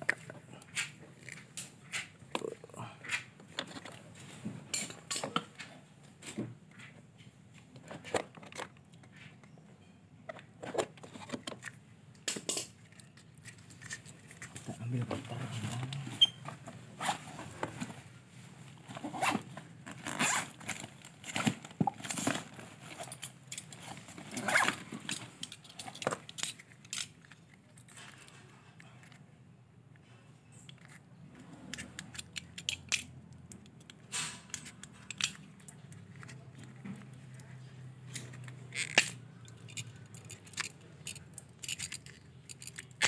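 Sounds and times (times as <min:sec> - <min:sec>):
wires clicking and tapping: 0:31.7 - 0:43.0.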